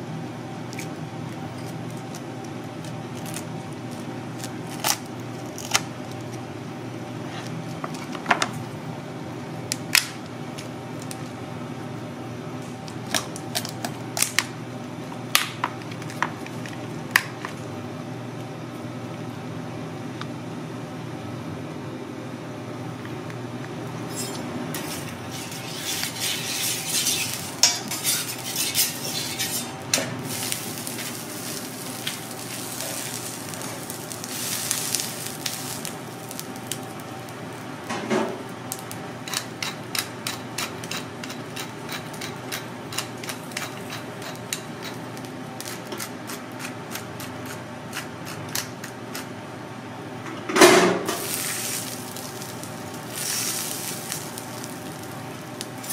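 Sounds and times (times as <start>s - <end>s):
griddle hiss and hum: 0.0s - 55.9s
prawn crackling on hot plate: 0.6s - 6.4s, 24.1s - 47.0s, 51.2s - 55.9s
metal utensils clinking and scraping: 24.1s - 29.8s.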